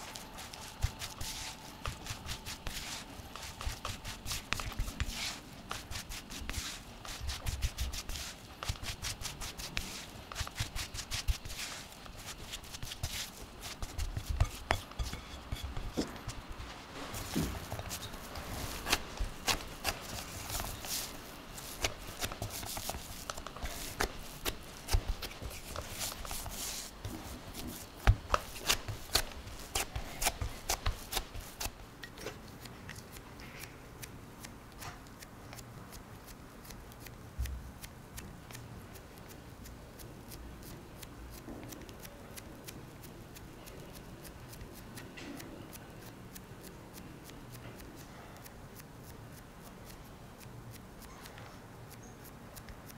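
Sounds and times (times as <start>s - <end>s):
hands rustling crumbly dough: 0.0s - 33.8s
soft pressing of dough: 0.0s - 40.1s.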